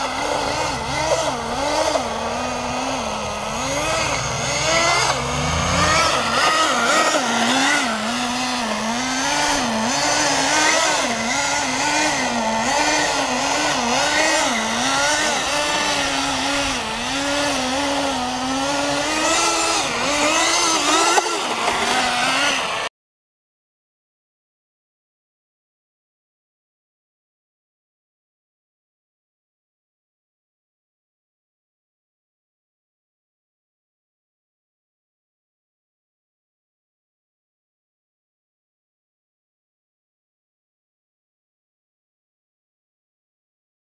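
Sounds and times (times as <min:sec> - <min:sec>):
small model engine revving: 0:00.0 - 0:22.9.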